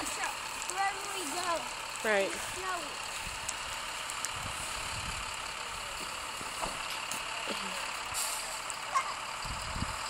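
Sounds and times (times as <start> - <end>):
distant truck engines rumbling: 0.0 - 10.0.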